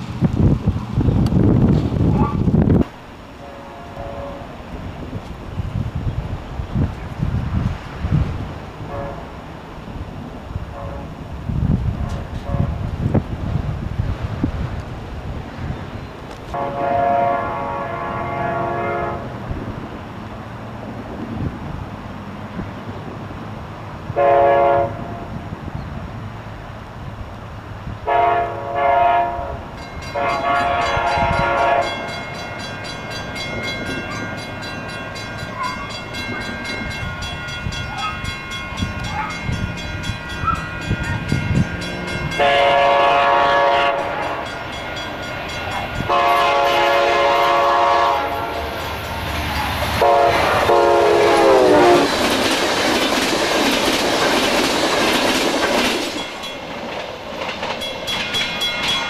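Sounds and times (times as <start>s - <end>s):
train wheels roaring on rails: 0.0s - 59.0s
locomotive air horn blasts: 3.3s - 4.7s, 8.8s - 9.4s, 10.7s - 11.2s, 12.0s - 12.9s, 16.5s - 19.4s, 24.1s - 25.4s, 28.0s - 32.3s, 40.4s - 44.6s, 45.7s - 48.8s, 50.0s - 52.1s.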